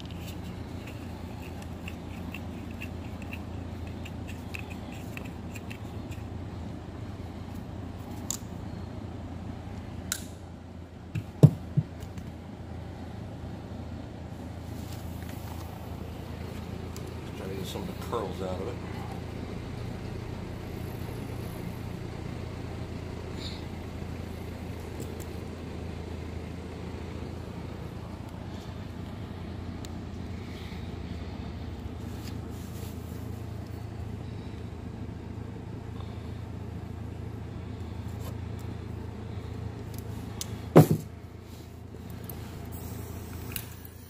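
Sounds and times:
faint handling clicks: 0:00.0 - 0:06.3
low mechanical hum: 0:00.0 - 0:44.0
sharp snap: 0:10.1 - 0:10.4.

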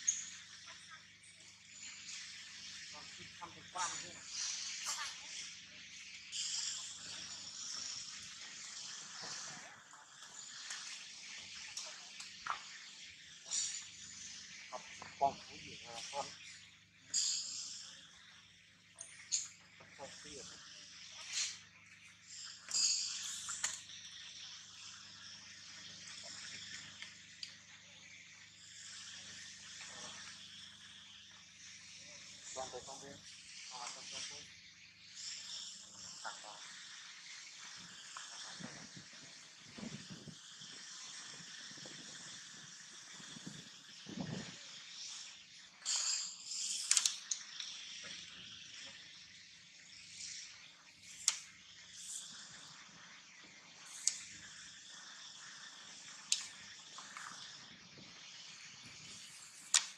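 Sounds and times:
faint steady hiss: 0:00.0 - 0:59.9
small clicks: 0:45.9 - 0:48.4.

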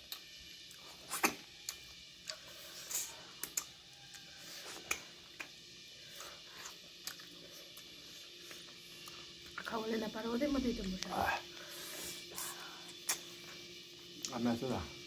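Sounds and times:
sucking meat off bones: 0:00.0 - 0:09.6
wet chewing and smacking: 0:00.0 - 0:09.7, 0:12.9 - 0:13.6.

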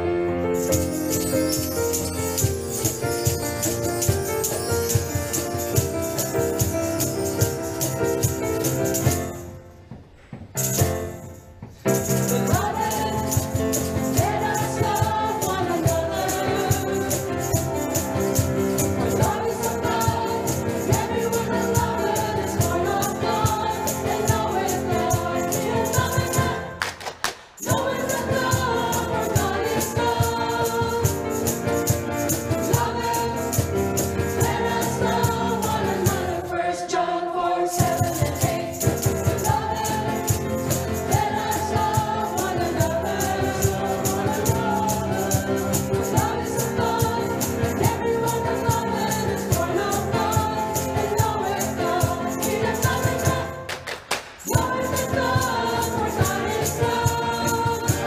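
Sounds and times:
rattling percussion: 0:00.6 - 0:27.0, 0:27.6 - 0:36.5, 0:37.8 - 0:58.0
choir singing: 0:12.3 - 0:26.8, 0:27.6 - 0:53.8, 0:54.4 - 0:58.0.

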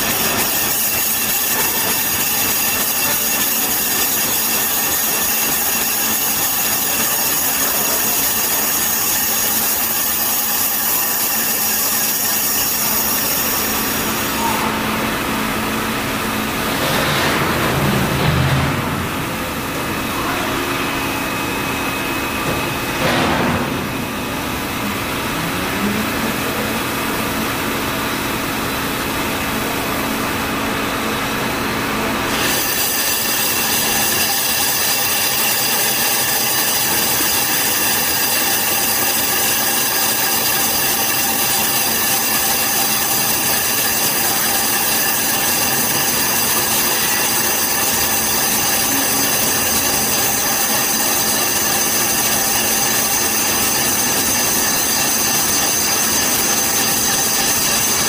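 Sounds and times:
metal-cutting screech: 0:00.0 - 0:14.9, 0:32.3 - 0:58.0
machine hum: 0:12.1 - 0:32.4.

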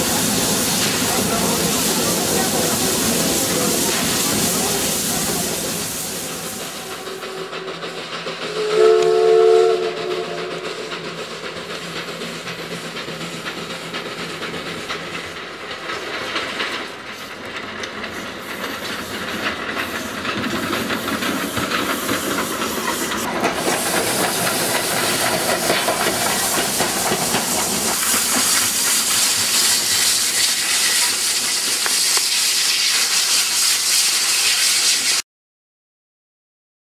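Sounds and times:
steam engine hissing and running: 0:00.0 - 0:35.2
steam locomotive whistle: 0:08.4 - 0:11.0.

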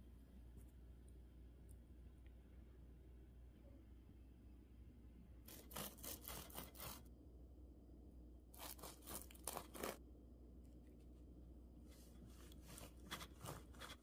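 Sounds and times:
knife sawing through crisp pastry: 0:05.5 - 0:07.1, 0:08.6 - 0:10.0, 0:12.4 - 0:14.0.

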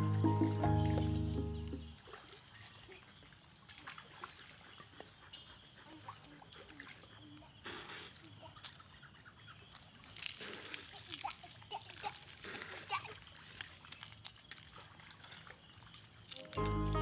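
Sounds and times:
small chirps and clicks: 0:16.2 - 0:16.8.

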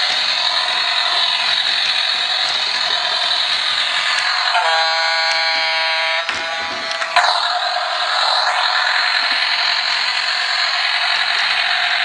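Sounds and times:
toy engine-like buzzing: 0:00.0 - 0:12.0
buzzer-like tone: 0:04.5 - 0:06.8.

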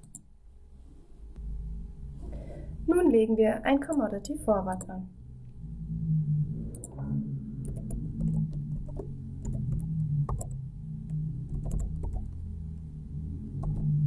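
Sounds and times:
soft synthesizer music: 0:01.3 - 0:14.0
computer keyboard clicks: 0:07.7 - 0:10.5, 0:11.5 - 0:12.4.

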